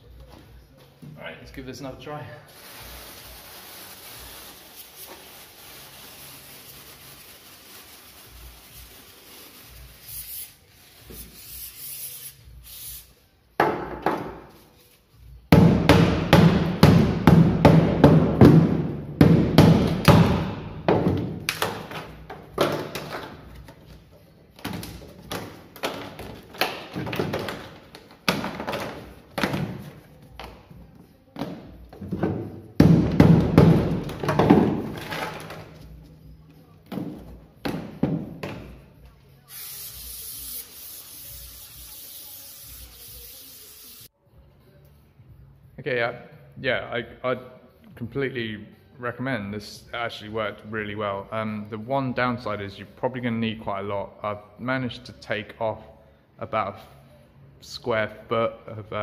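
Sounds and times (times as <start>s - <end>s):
aerosol spray hissing: 39.5s - 44.1s.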